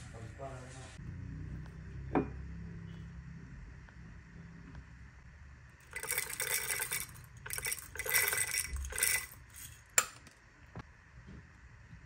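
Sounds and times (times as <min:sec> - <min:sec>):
coffee beans rattling into grinder: 0:05.8 - 0:10.3.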